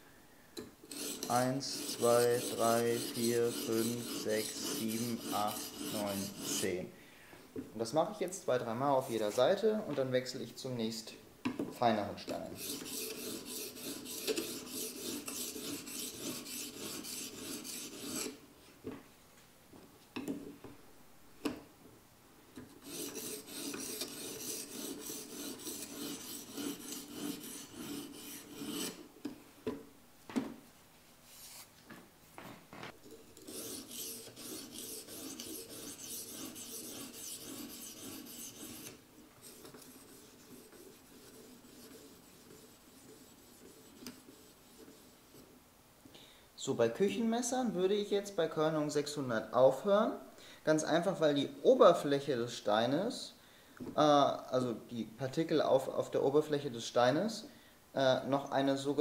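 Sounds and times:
sharpening stone scraping knife blade: 0.9s - 6.7s, 12.6s - 18.4s, 22.8s - 29.0s, 33.1s - 39.0s.

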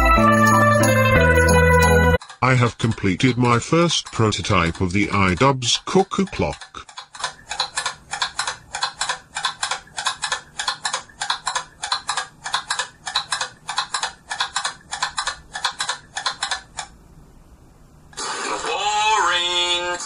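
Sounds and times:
clock ticking: 2.2s - 16.9s.

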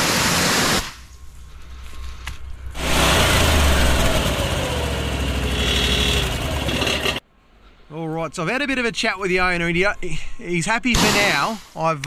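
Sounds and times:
high-pressure water spraying: 0.0s - 1.1s
petrol engine humming: 1.0s - 7.2s.

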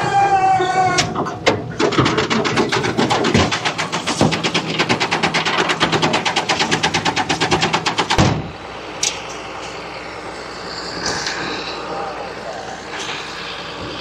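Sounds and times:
machine rattling: 1.1s - 9.8s
quiet steady drone: 7.9s - 14.0s.

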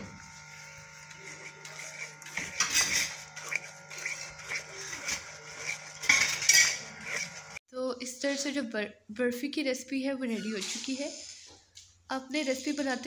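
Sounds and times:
wooden spatula scraping pot: 0.0s - 7.6s.

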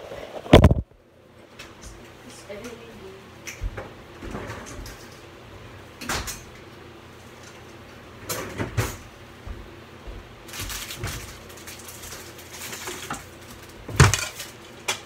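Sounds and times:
steady low hum: 0.0s - 15.0s
kitchen clatter: 10.5s - 15.0s.

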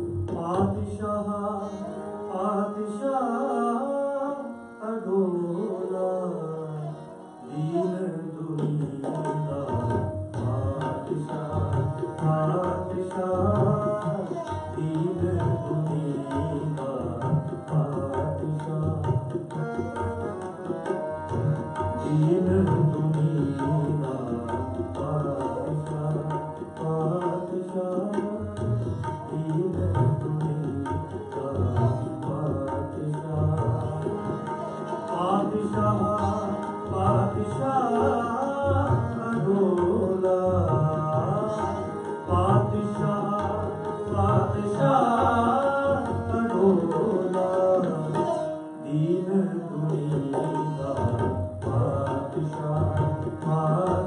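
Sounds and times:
tabla drums: 0.0s - 3.0s, 7.6s - 54.0s
harmonium: 0.0s - 54.0s.

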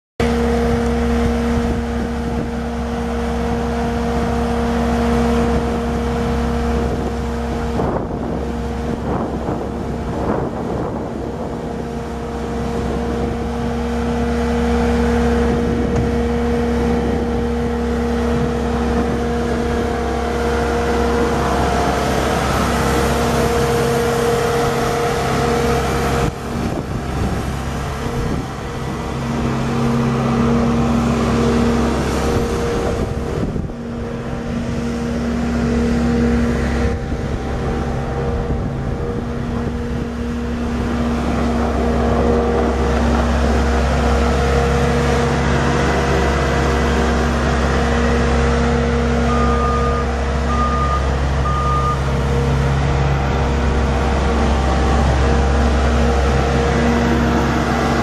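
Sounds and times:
diesel engine running: 0.2s - 58.0s
backup alarm beeping: 49.2s - 52.1s.

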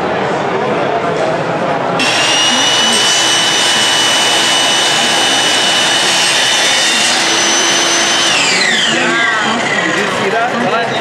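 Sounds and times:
dust extraction rushing noise: 2.0s - 10.0s
table saw motor whine: 2.0s - 10.2s.

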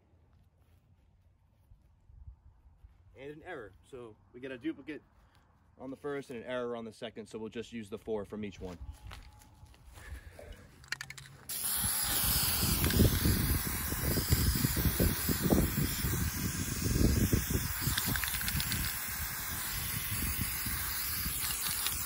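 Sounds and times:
spray-paint can hissing: 11.0s - 22.0s.

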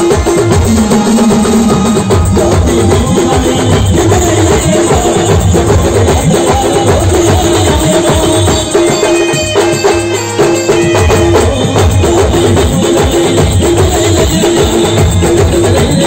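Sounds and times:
heavy drum beat: 0.0s - 16.0s
live band music: 0.0s - 16.0s.

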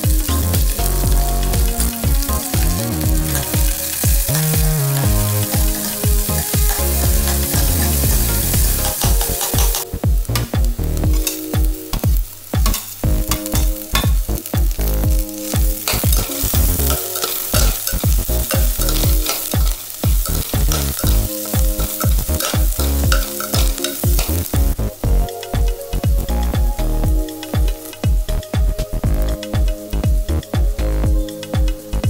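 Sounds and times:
onions sizzling in oil: 0.0s - 25.5s
background music: 0.0s - 32.0s
spatula scraping pan: 15.4s - 24.5s.

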